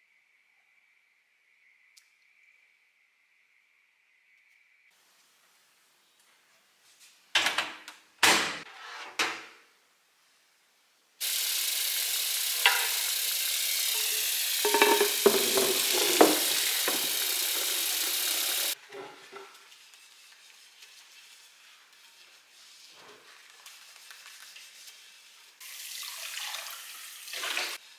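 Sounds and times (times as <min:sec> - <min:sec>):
tap running into sink: 0:12.6 - 0:13.2, 0:13.9 - 0:18.7
glass clinking in water: 0:14.7 - 0:15.7.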